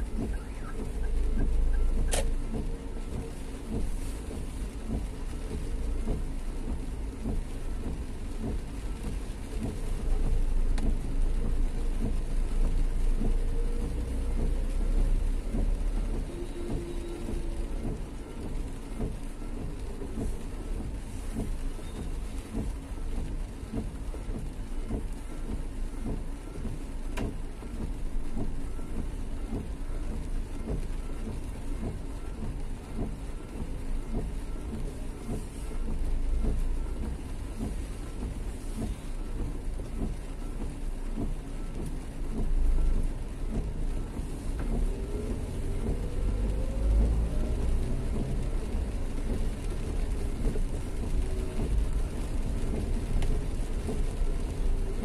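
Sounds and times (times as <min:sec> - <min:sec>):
steady rain on street: 0:00.0 - 0:55.0
traffic going by: 0:28.8 - 0:55.0
vehicle engine speeding up: 0:44.7 - 0:50.4.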